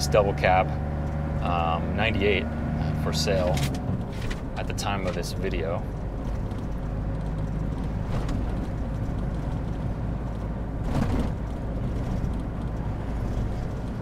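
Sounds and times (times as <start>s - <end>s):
diesel truck engine running: 0.0s - 14.0s
road rumble: 0.0s - 14.0s.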